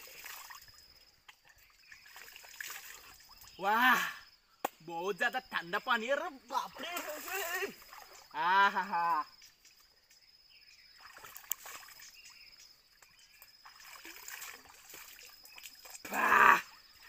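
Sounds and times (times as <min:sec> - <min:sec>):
river water trickling: 0:00.0 - 0:04.4, 0:05.0 - 0:17.0
water splash: 0:06.8 - 0:08.3, 0:11.0 - 0:12.2, 0:13.6 - 0:16.2.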